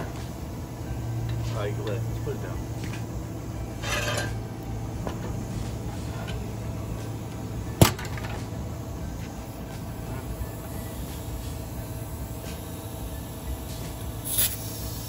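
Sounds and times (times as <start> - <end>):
steady low hum: 0.0 - 15.0
air hiss from tire valve: 8.6 - 15.0.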